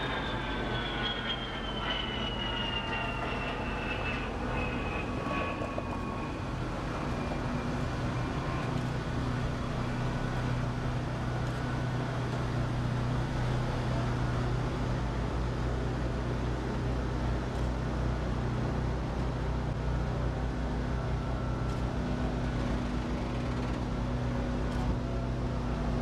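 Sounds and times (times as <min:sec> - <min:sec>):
faint high squeal: 0:00.0 - 0:08.9
diesel truck engine drone: 0:00.0 - 0:26.0.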